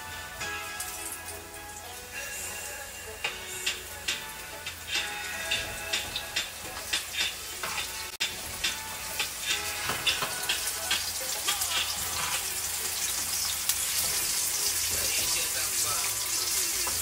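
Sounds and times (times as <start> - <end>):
chicken sizzling in hot oil: 0.0 - 17.0
oil crackles and pops: 4.8 - 17.0.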